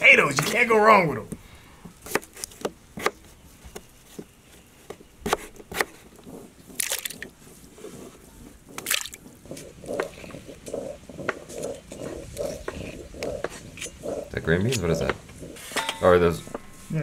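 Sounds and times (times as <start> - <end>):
soft rubbing: 3.3 - 17.0
potatoes splashing in water: 8.8 - 9.2.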